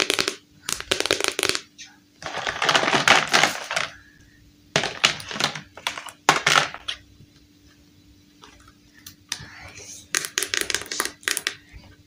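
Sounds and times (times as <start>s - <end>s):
plastic pieces clattering: 2.2s - 4.0s, 4.8s - 7.0s.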